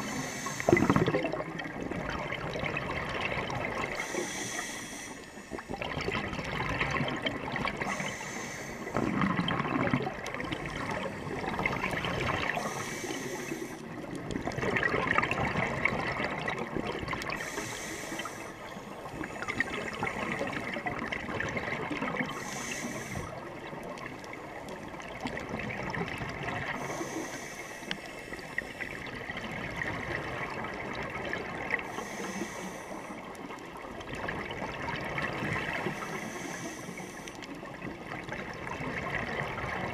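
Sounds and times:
regulator inhale hiss: 0.0 - 1.0, 3.9 - 5.8, 7.8 - 9.1, 11.1 - 14.1, 17.3 - 20.7, 22.3 - 23.6, 26.7 - 29.1, 31.8 - 33.5, 35.8 - 37.6
exhaled bubbles gurgling: 0.0 - 39.9.

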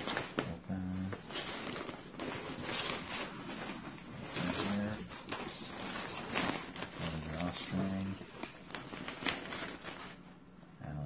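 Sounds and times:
canvas bag rustling: 0.0 - 10.4.

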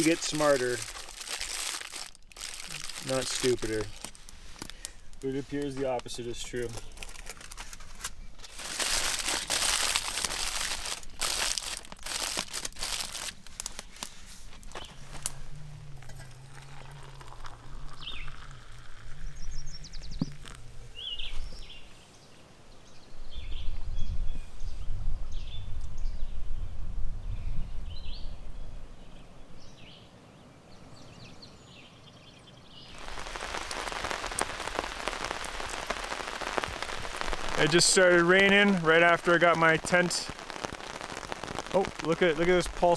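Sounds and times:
rain shower hiss: 0.0 - 22.1, 32.8 - 42.9
low rumble: 14.9 - 21.7.

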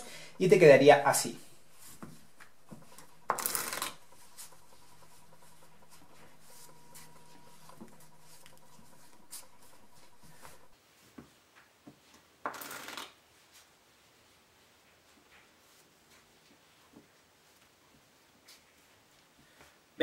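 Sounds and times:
riffle shuffle of cards: 1.6 - 10.7
playing cards tapping and sliding: 1.8 - 10.7.

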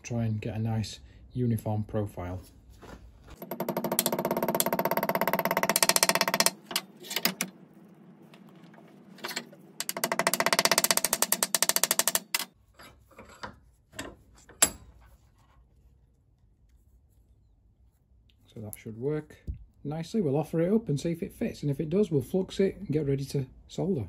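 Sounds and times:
hammer tapping steel disc: 3.4 - 6.7, 9.8 - 12.6.

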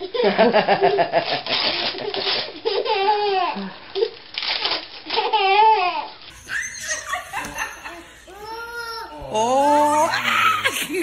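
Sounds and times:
wrapping paper crinkling and tearing: 4.3 - 5.2
baby laughing in squeals: 5.1 - 9.2.

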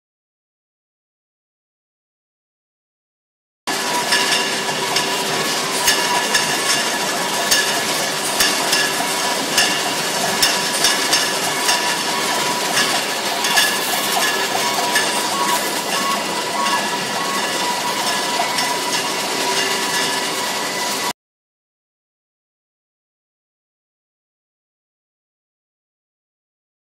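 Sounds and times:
machine hum with whine: 3.7 - 21.1.

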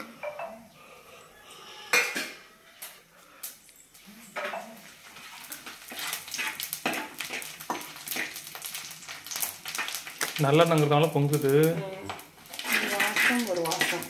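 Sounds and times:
spices sizzling in hot oil: 3.5 - 14.0
metal spoon stirring: 4.2 - 10.7, 12.0 - 14.0.

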